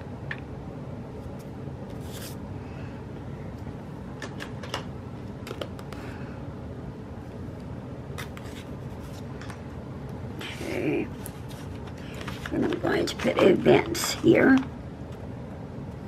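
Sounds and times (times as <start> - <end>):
low background hum: 0.0 - 16.0
paper stickers clicking and rustling: 4.2 - 6.0, 11.2 - 14.7.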